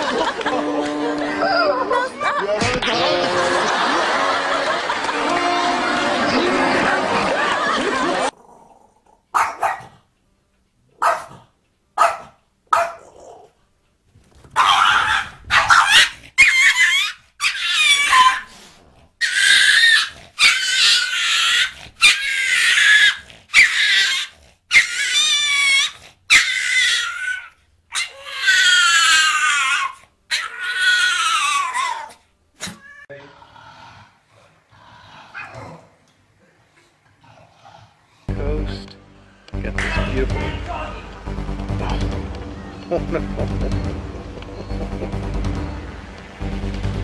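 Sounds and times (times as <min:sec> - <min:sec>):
dog barking and yelping: 0:09.3 - 0:10.0, 0:11.0 - 0:11.4, 0:12.0 - 0:13.5, 0:14.5 - 0:18.5, 0:19.2 - 0:32.9, 0:35.4 - 0:35.8.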